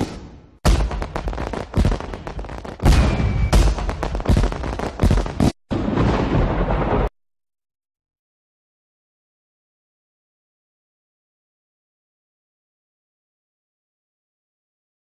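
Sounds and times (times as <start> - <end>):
fireworks banging and crackling: 0.0 - 7.1
firework whistle: 2.8 - 3.8.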